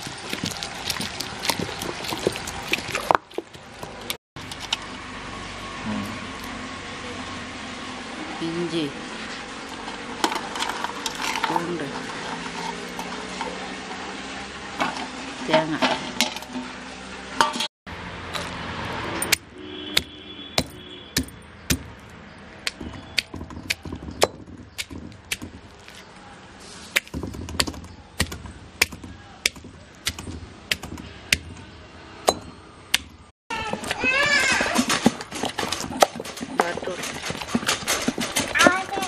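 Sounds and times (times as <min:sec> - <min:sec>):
grinding stone knocking and cracking: 0:00.0 - 0:04.8, 0:20.0 - 0:26.1, 0:27.0 - 0:31.7, 0:33.7 - 0:39.0.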